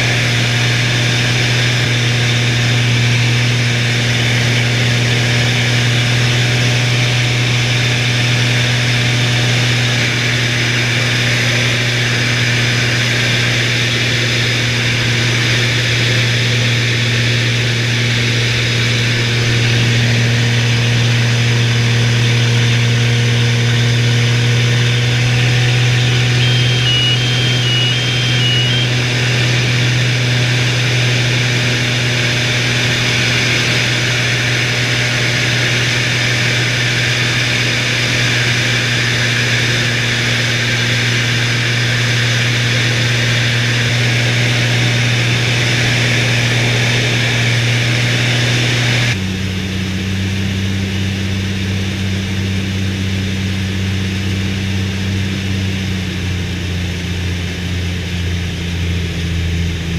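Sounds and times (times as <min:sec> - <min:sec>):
propeller engine drone: 0:00.0 - 0:59.9
high alternating electronic beeps: 0:26.3 - 0:29.0.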